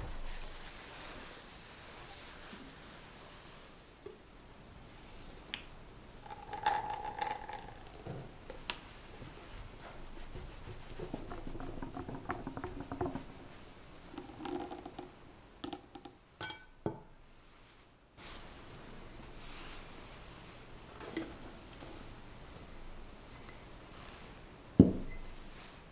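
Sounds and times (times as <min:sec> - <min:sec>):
mixture pouring into batter: 0:06.2 - 0:08.7, 0:11.1 - 0:15.8.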